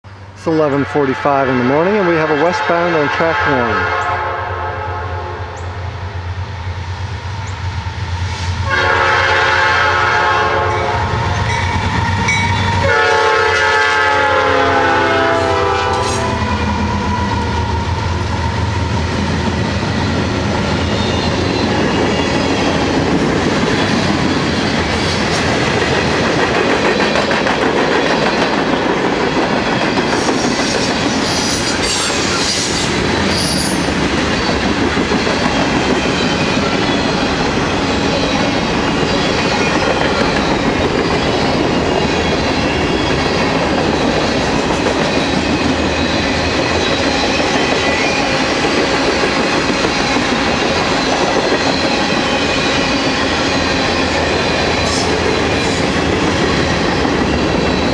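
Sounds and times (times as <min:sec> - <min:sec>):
diesel locomotives rumbling past: 0:00.0 - 0:57.9
locomotive horn blasts: 0:00.7 - 0:05.6, 0:08.6 - 0:11.6, 0:12.3 - 0:16.6.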